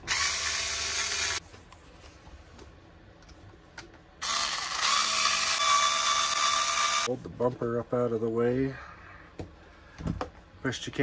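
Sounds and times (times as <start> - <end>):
electric screwdriver whirring: 0.0 - 1.4, 4.2 - 7.1.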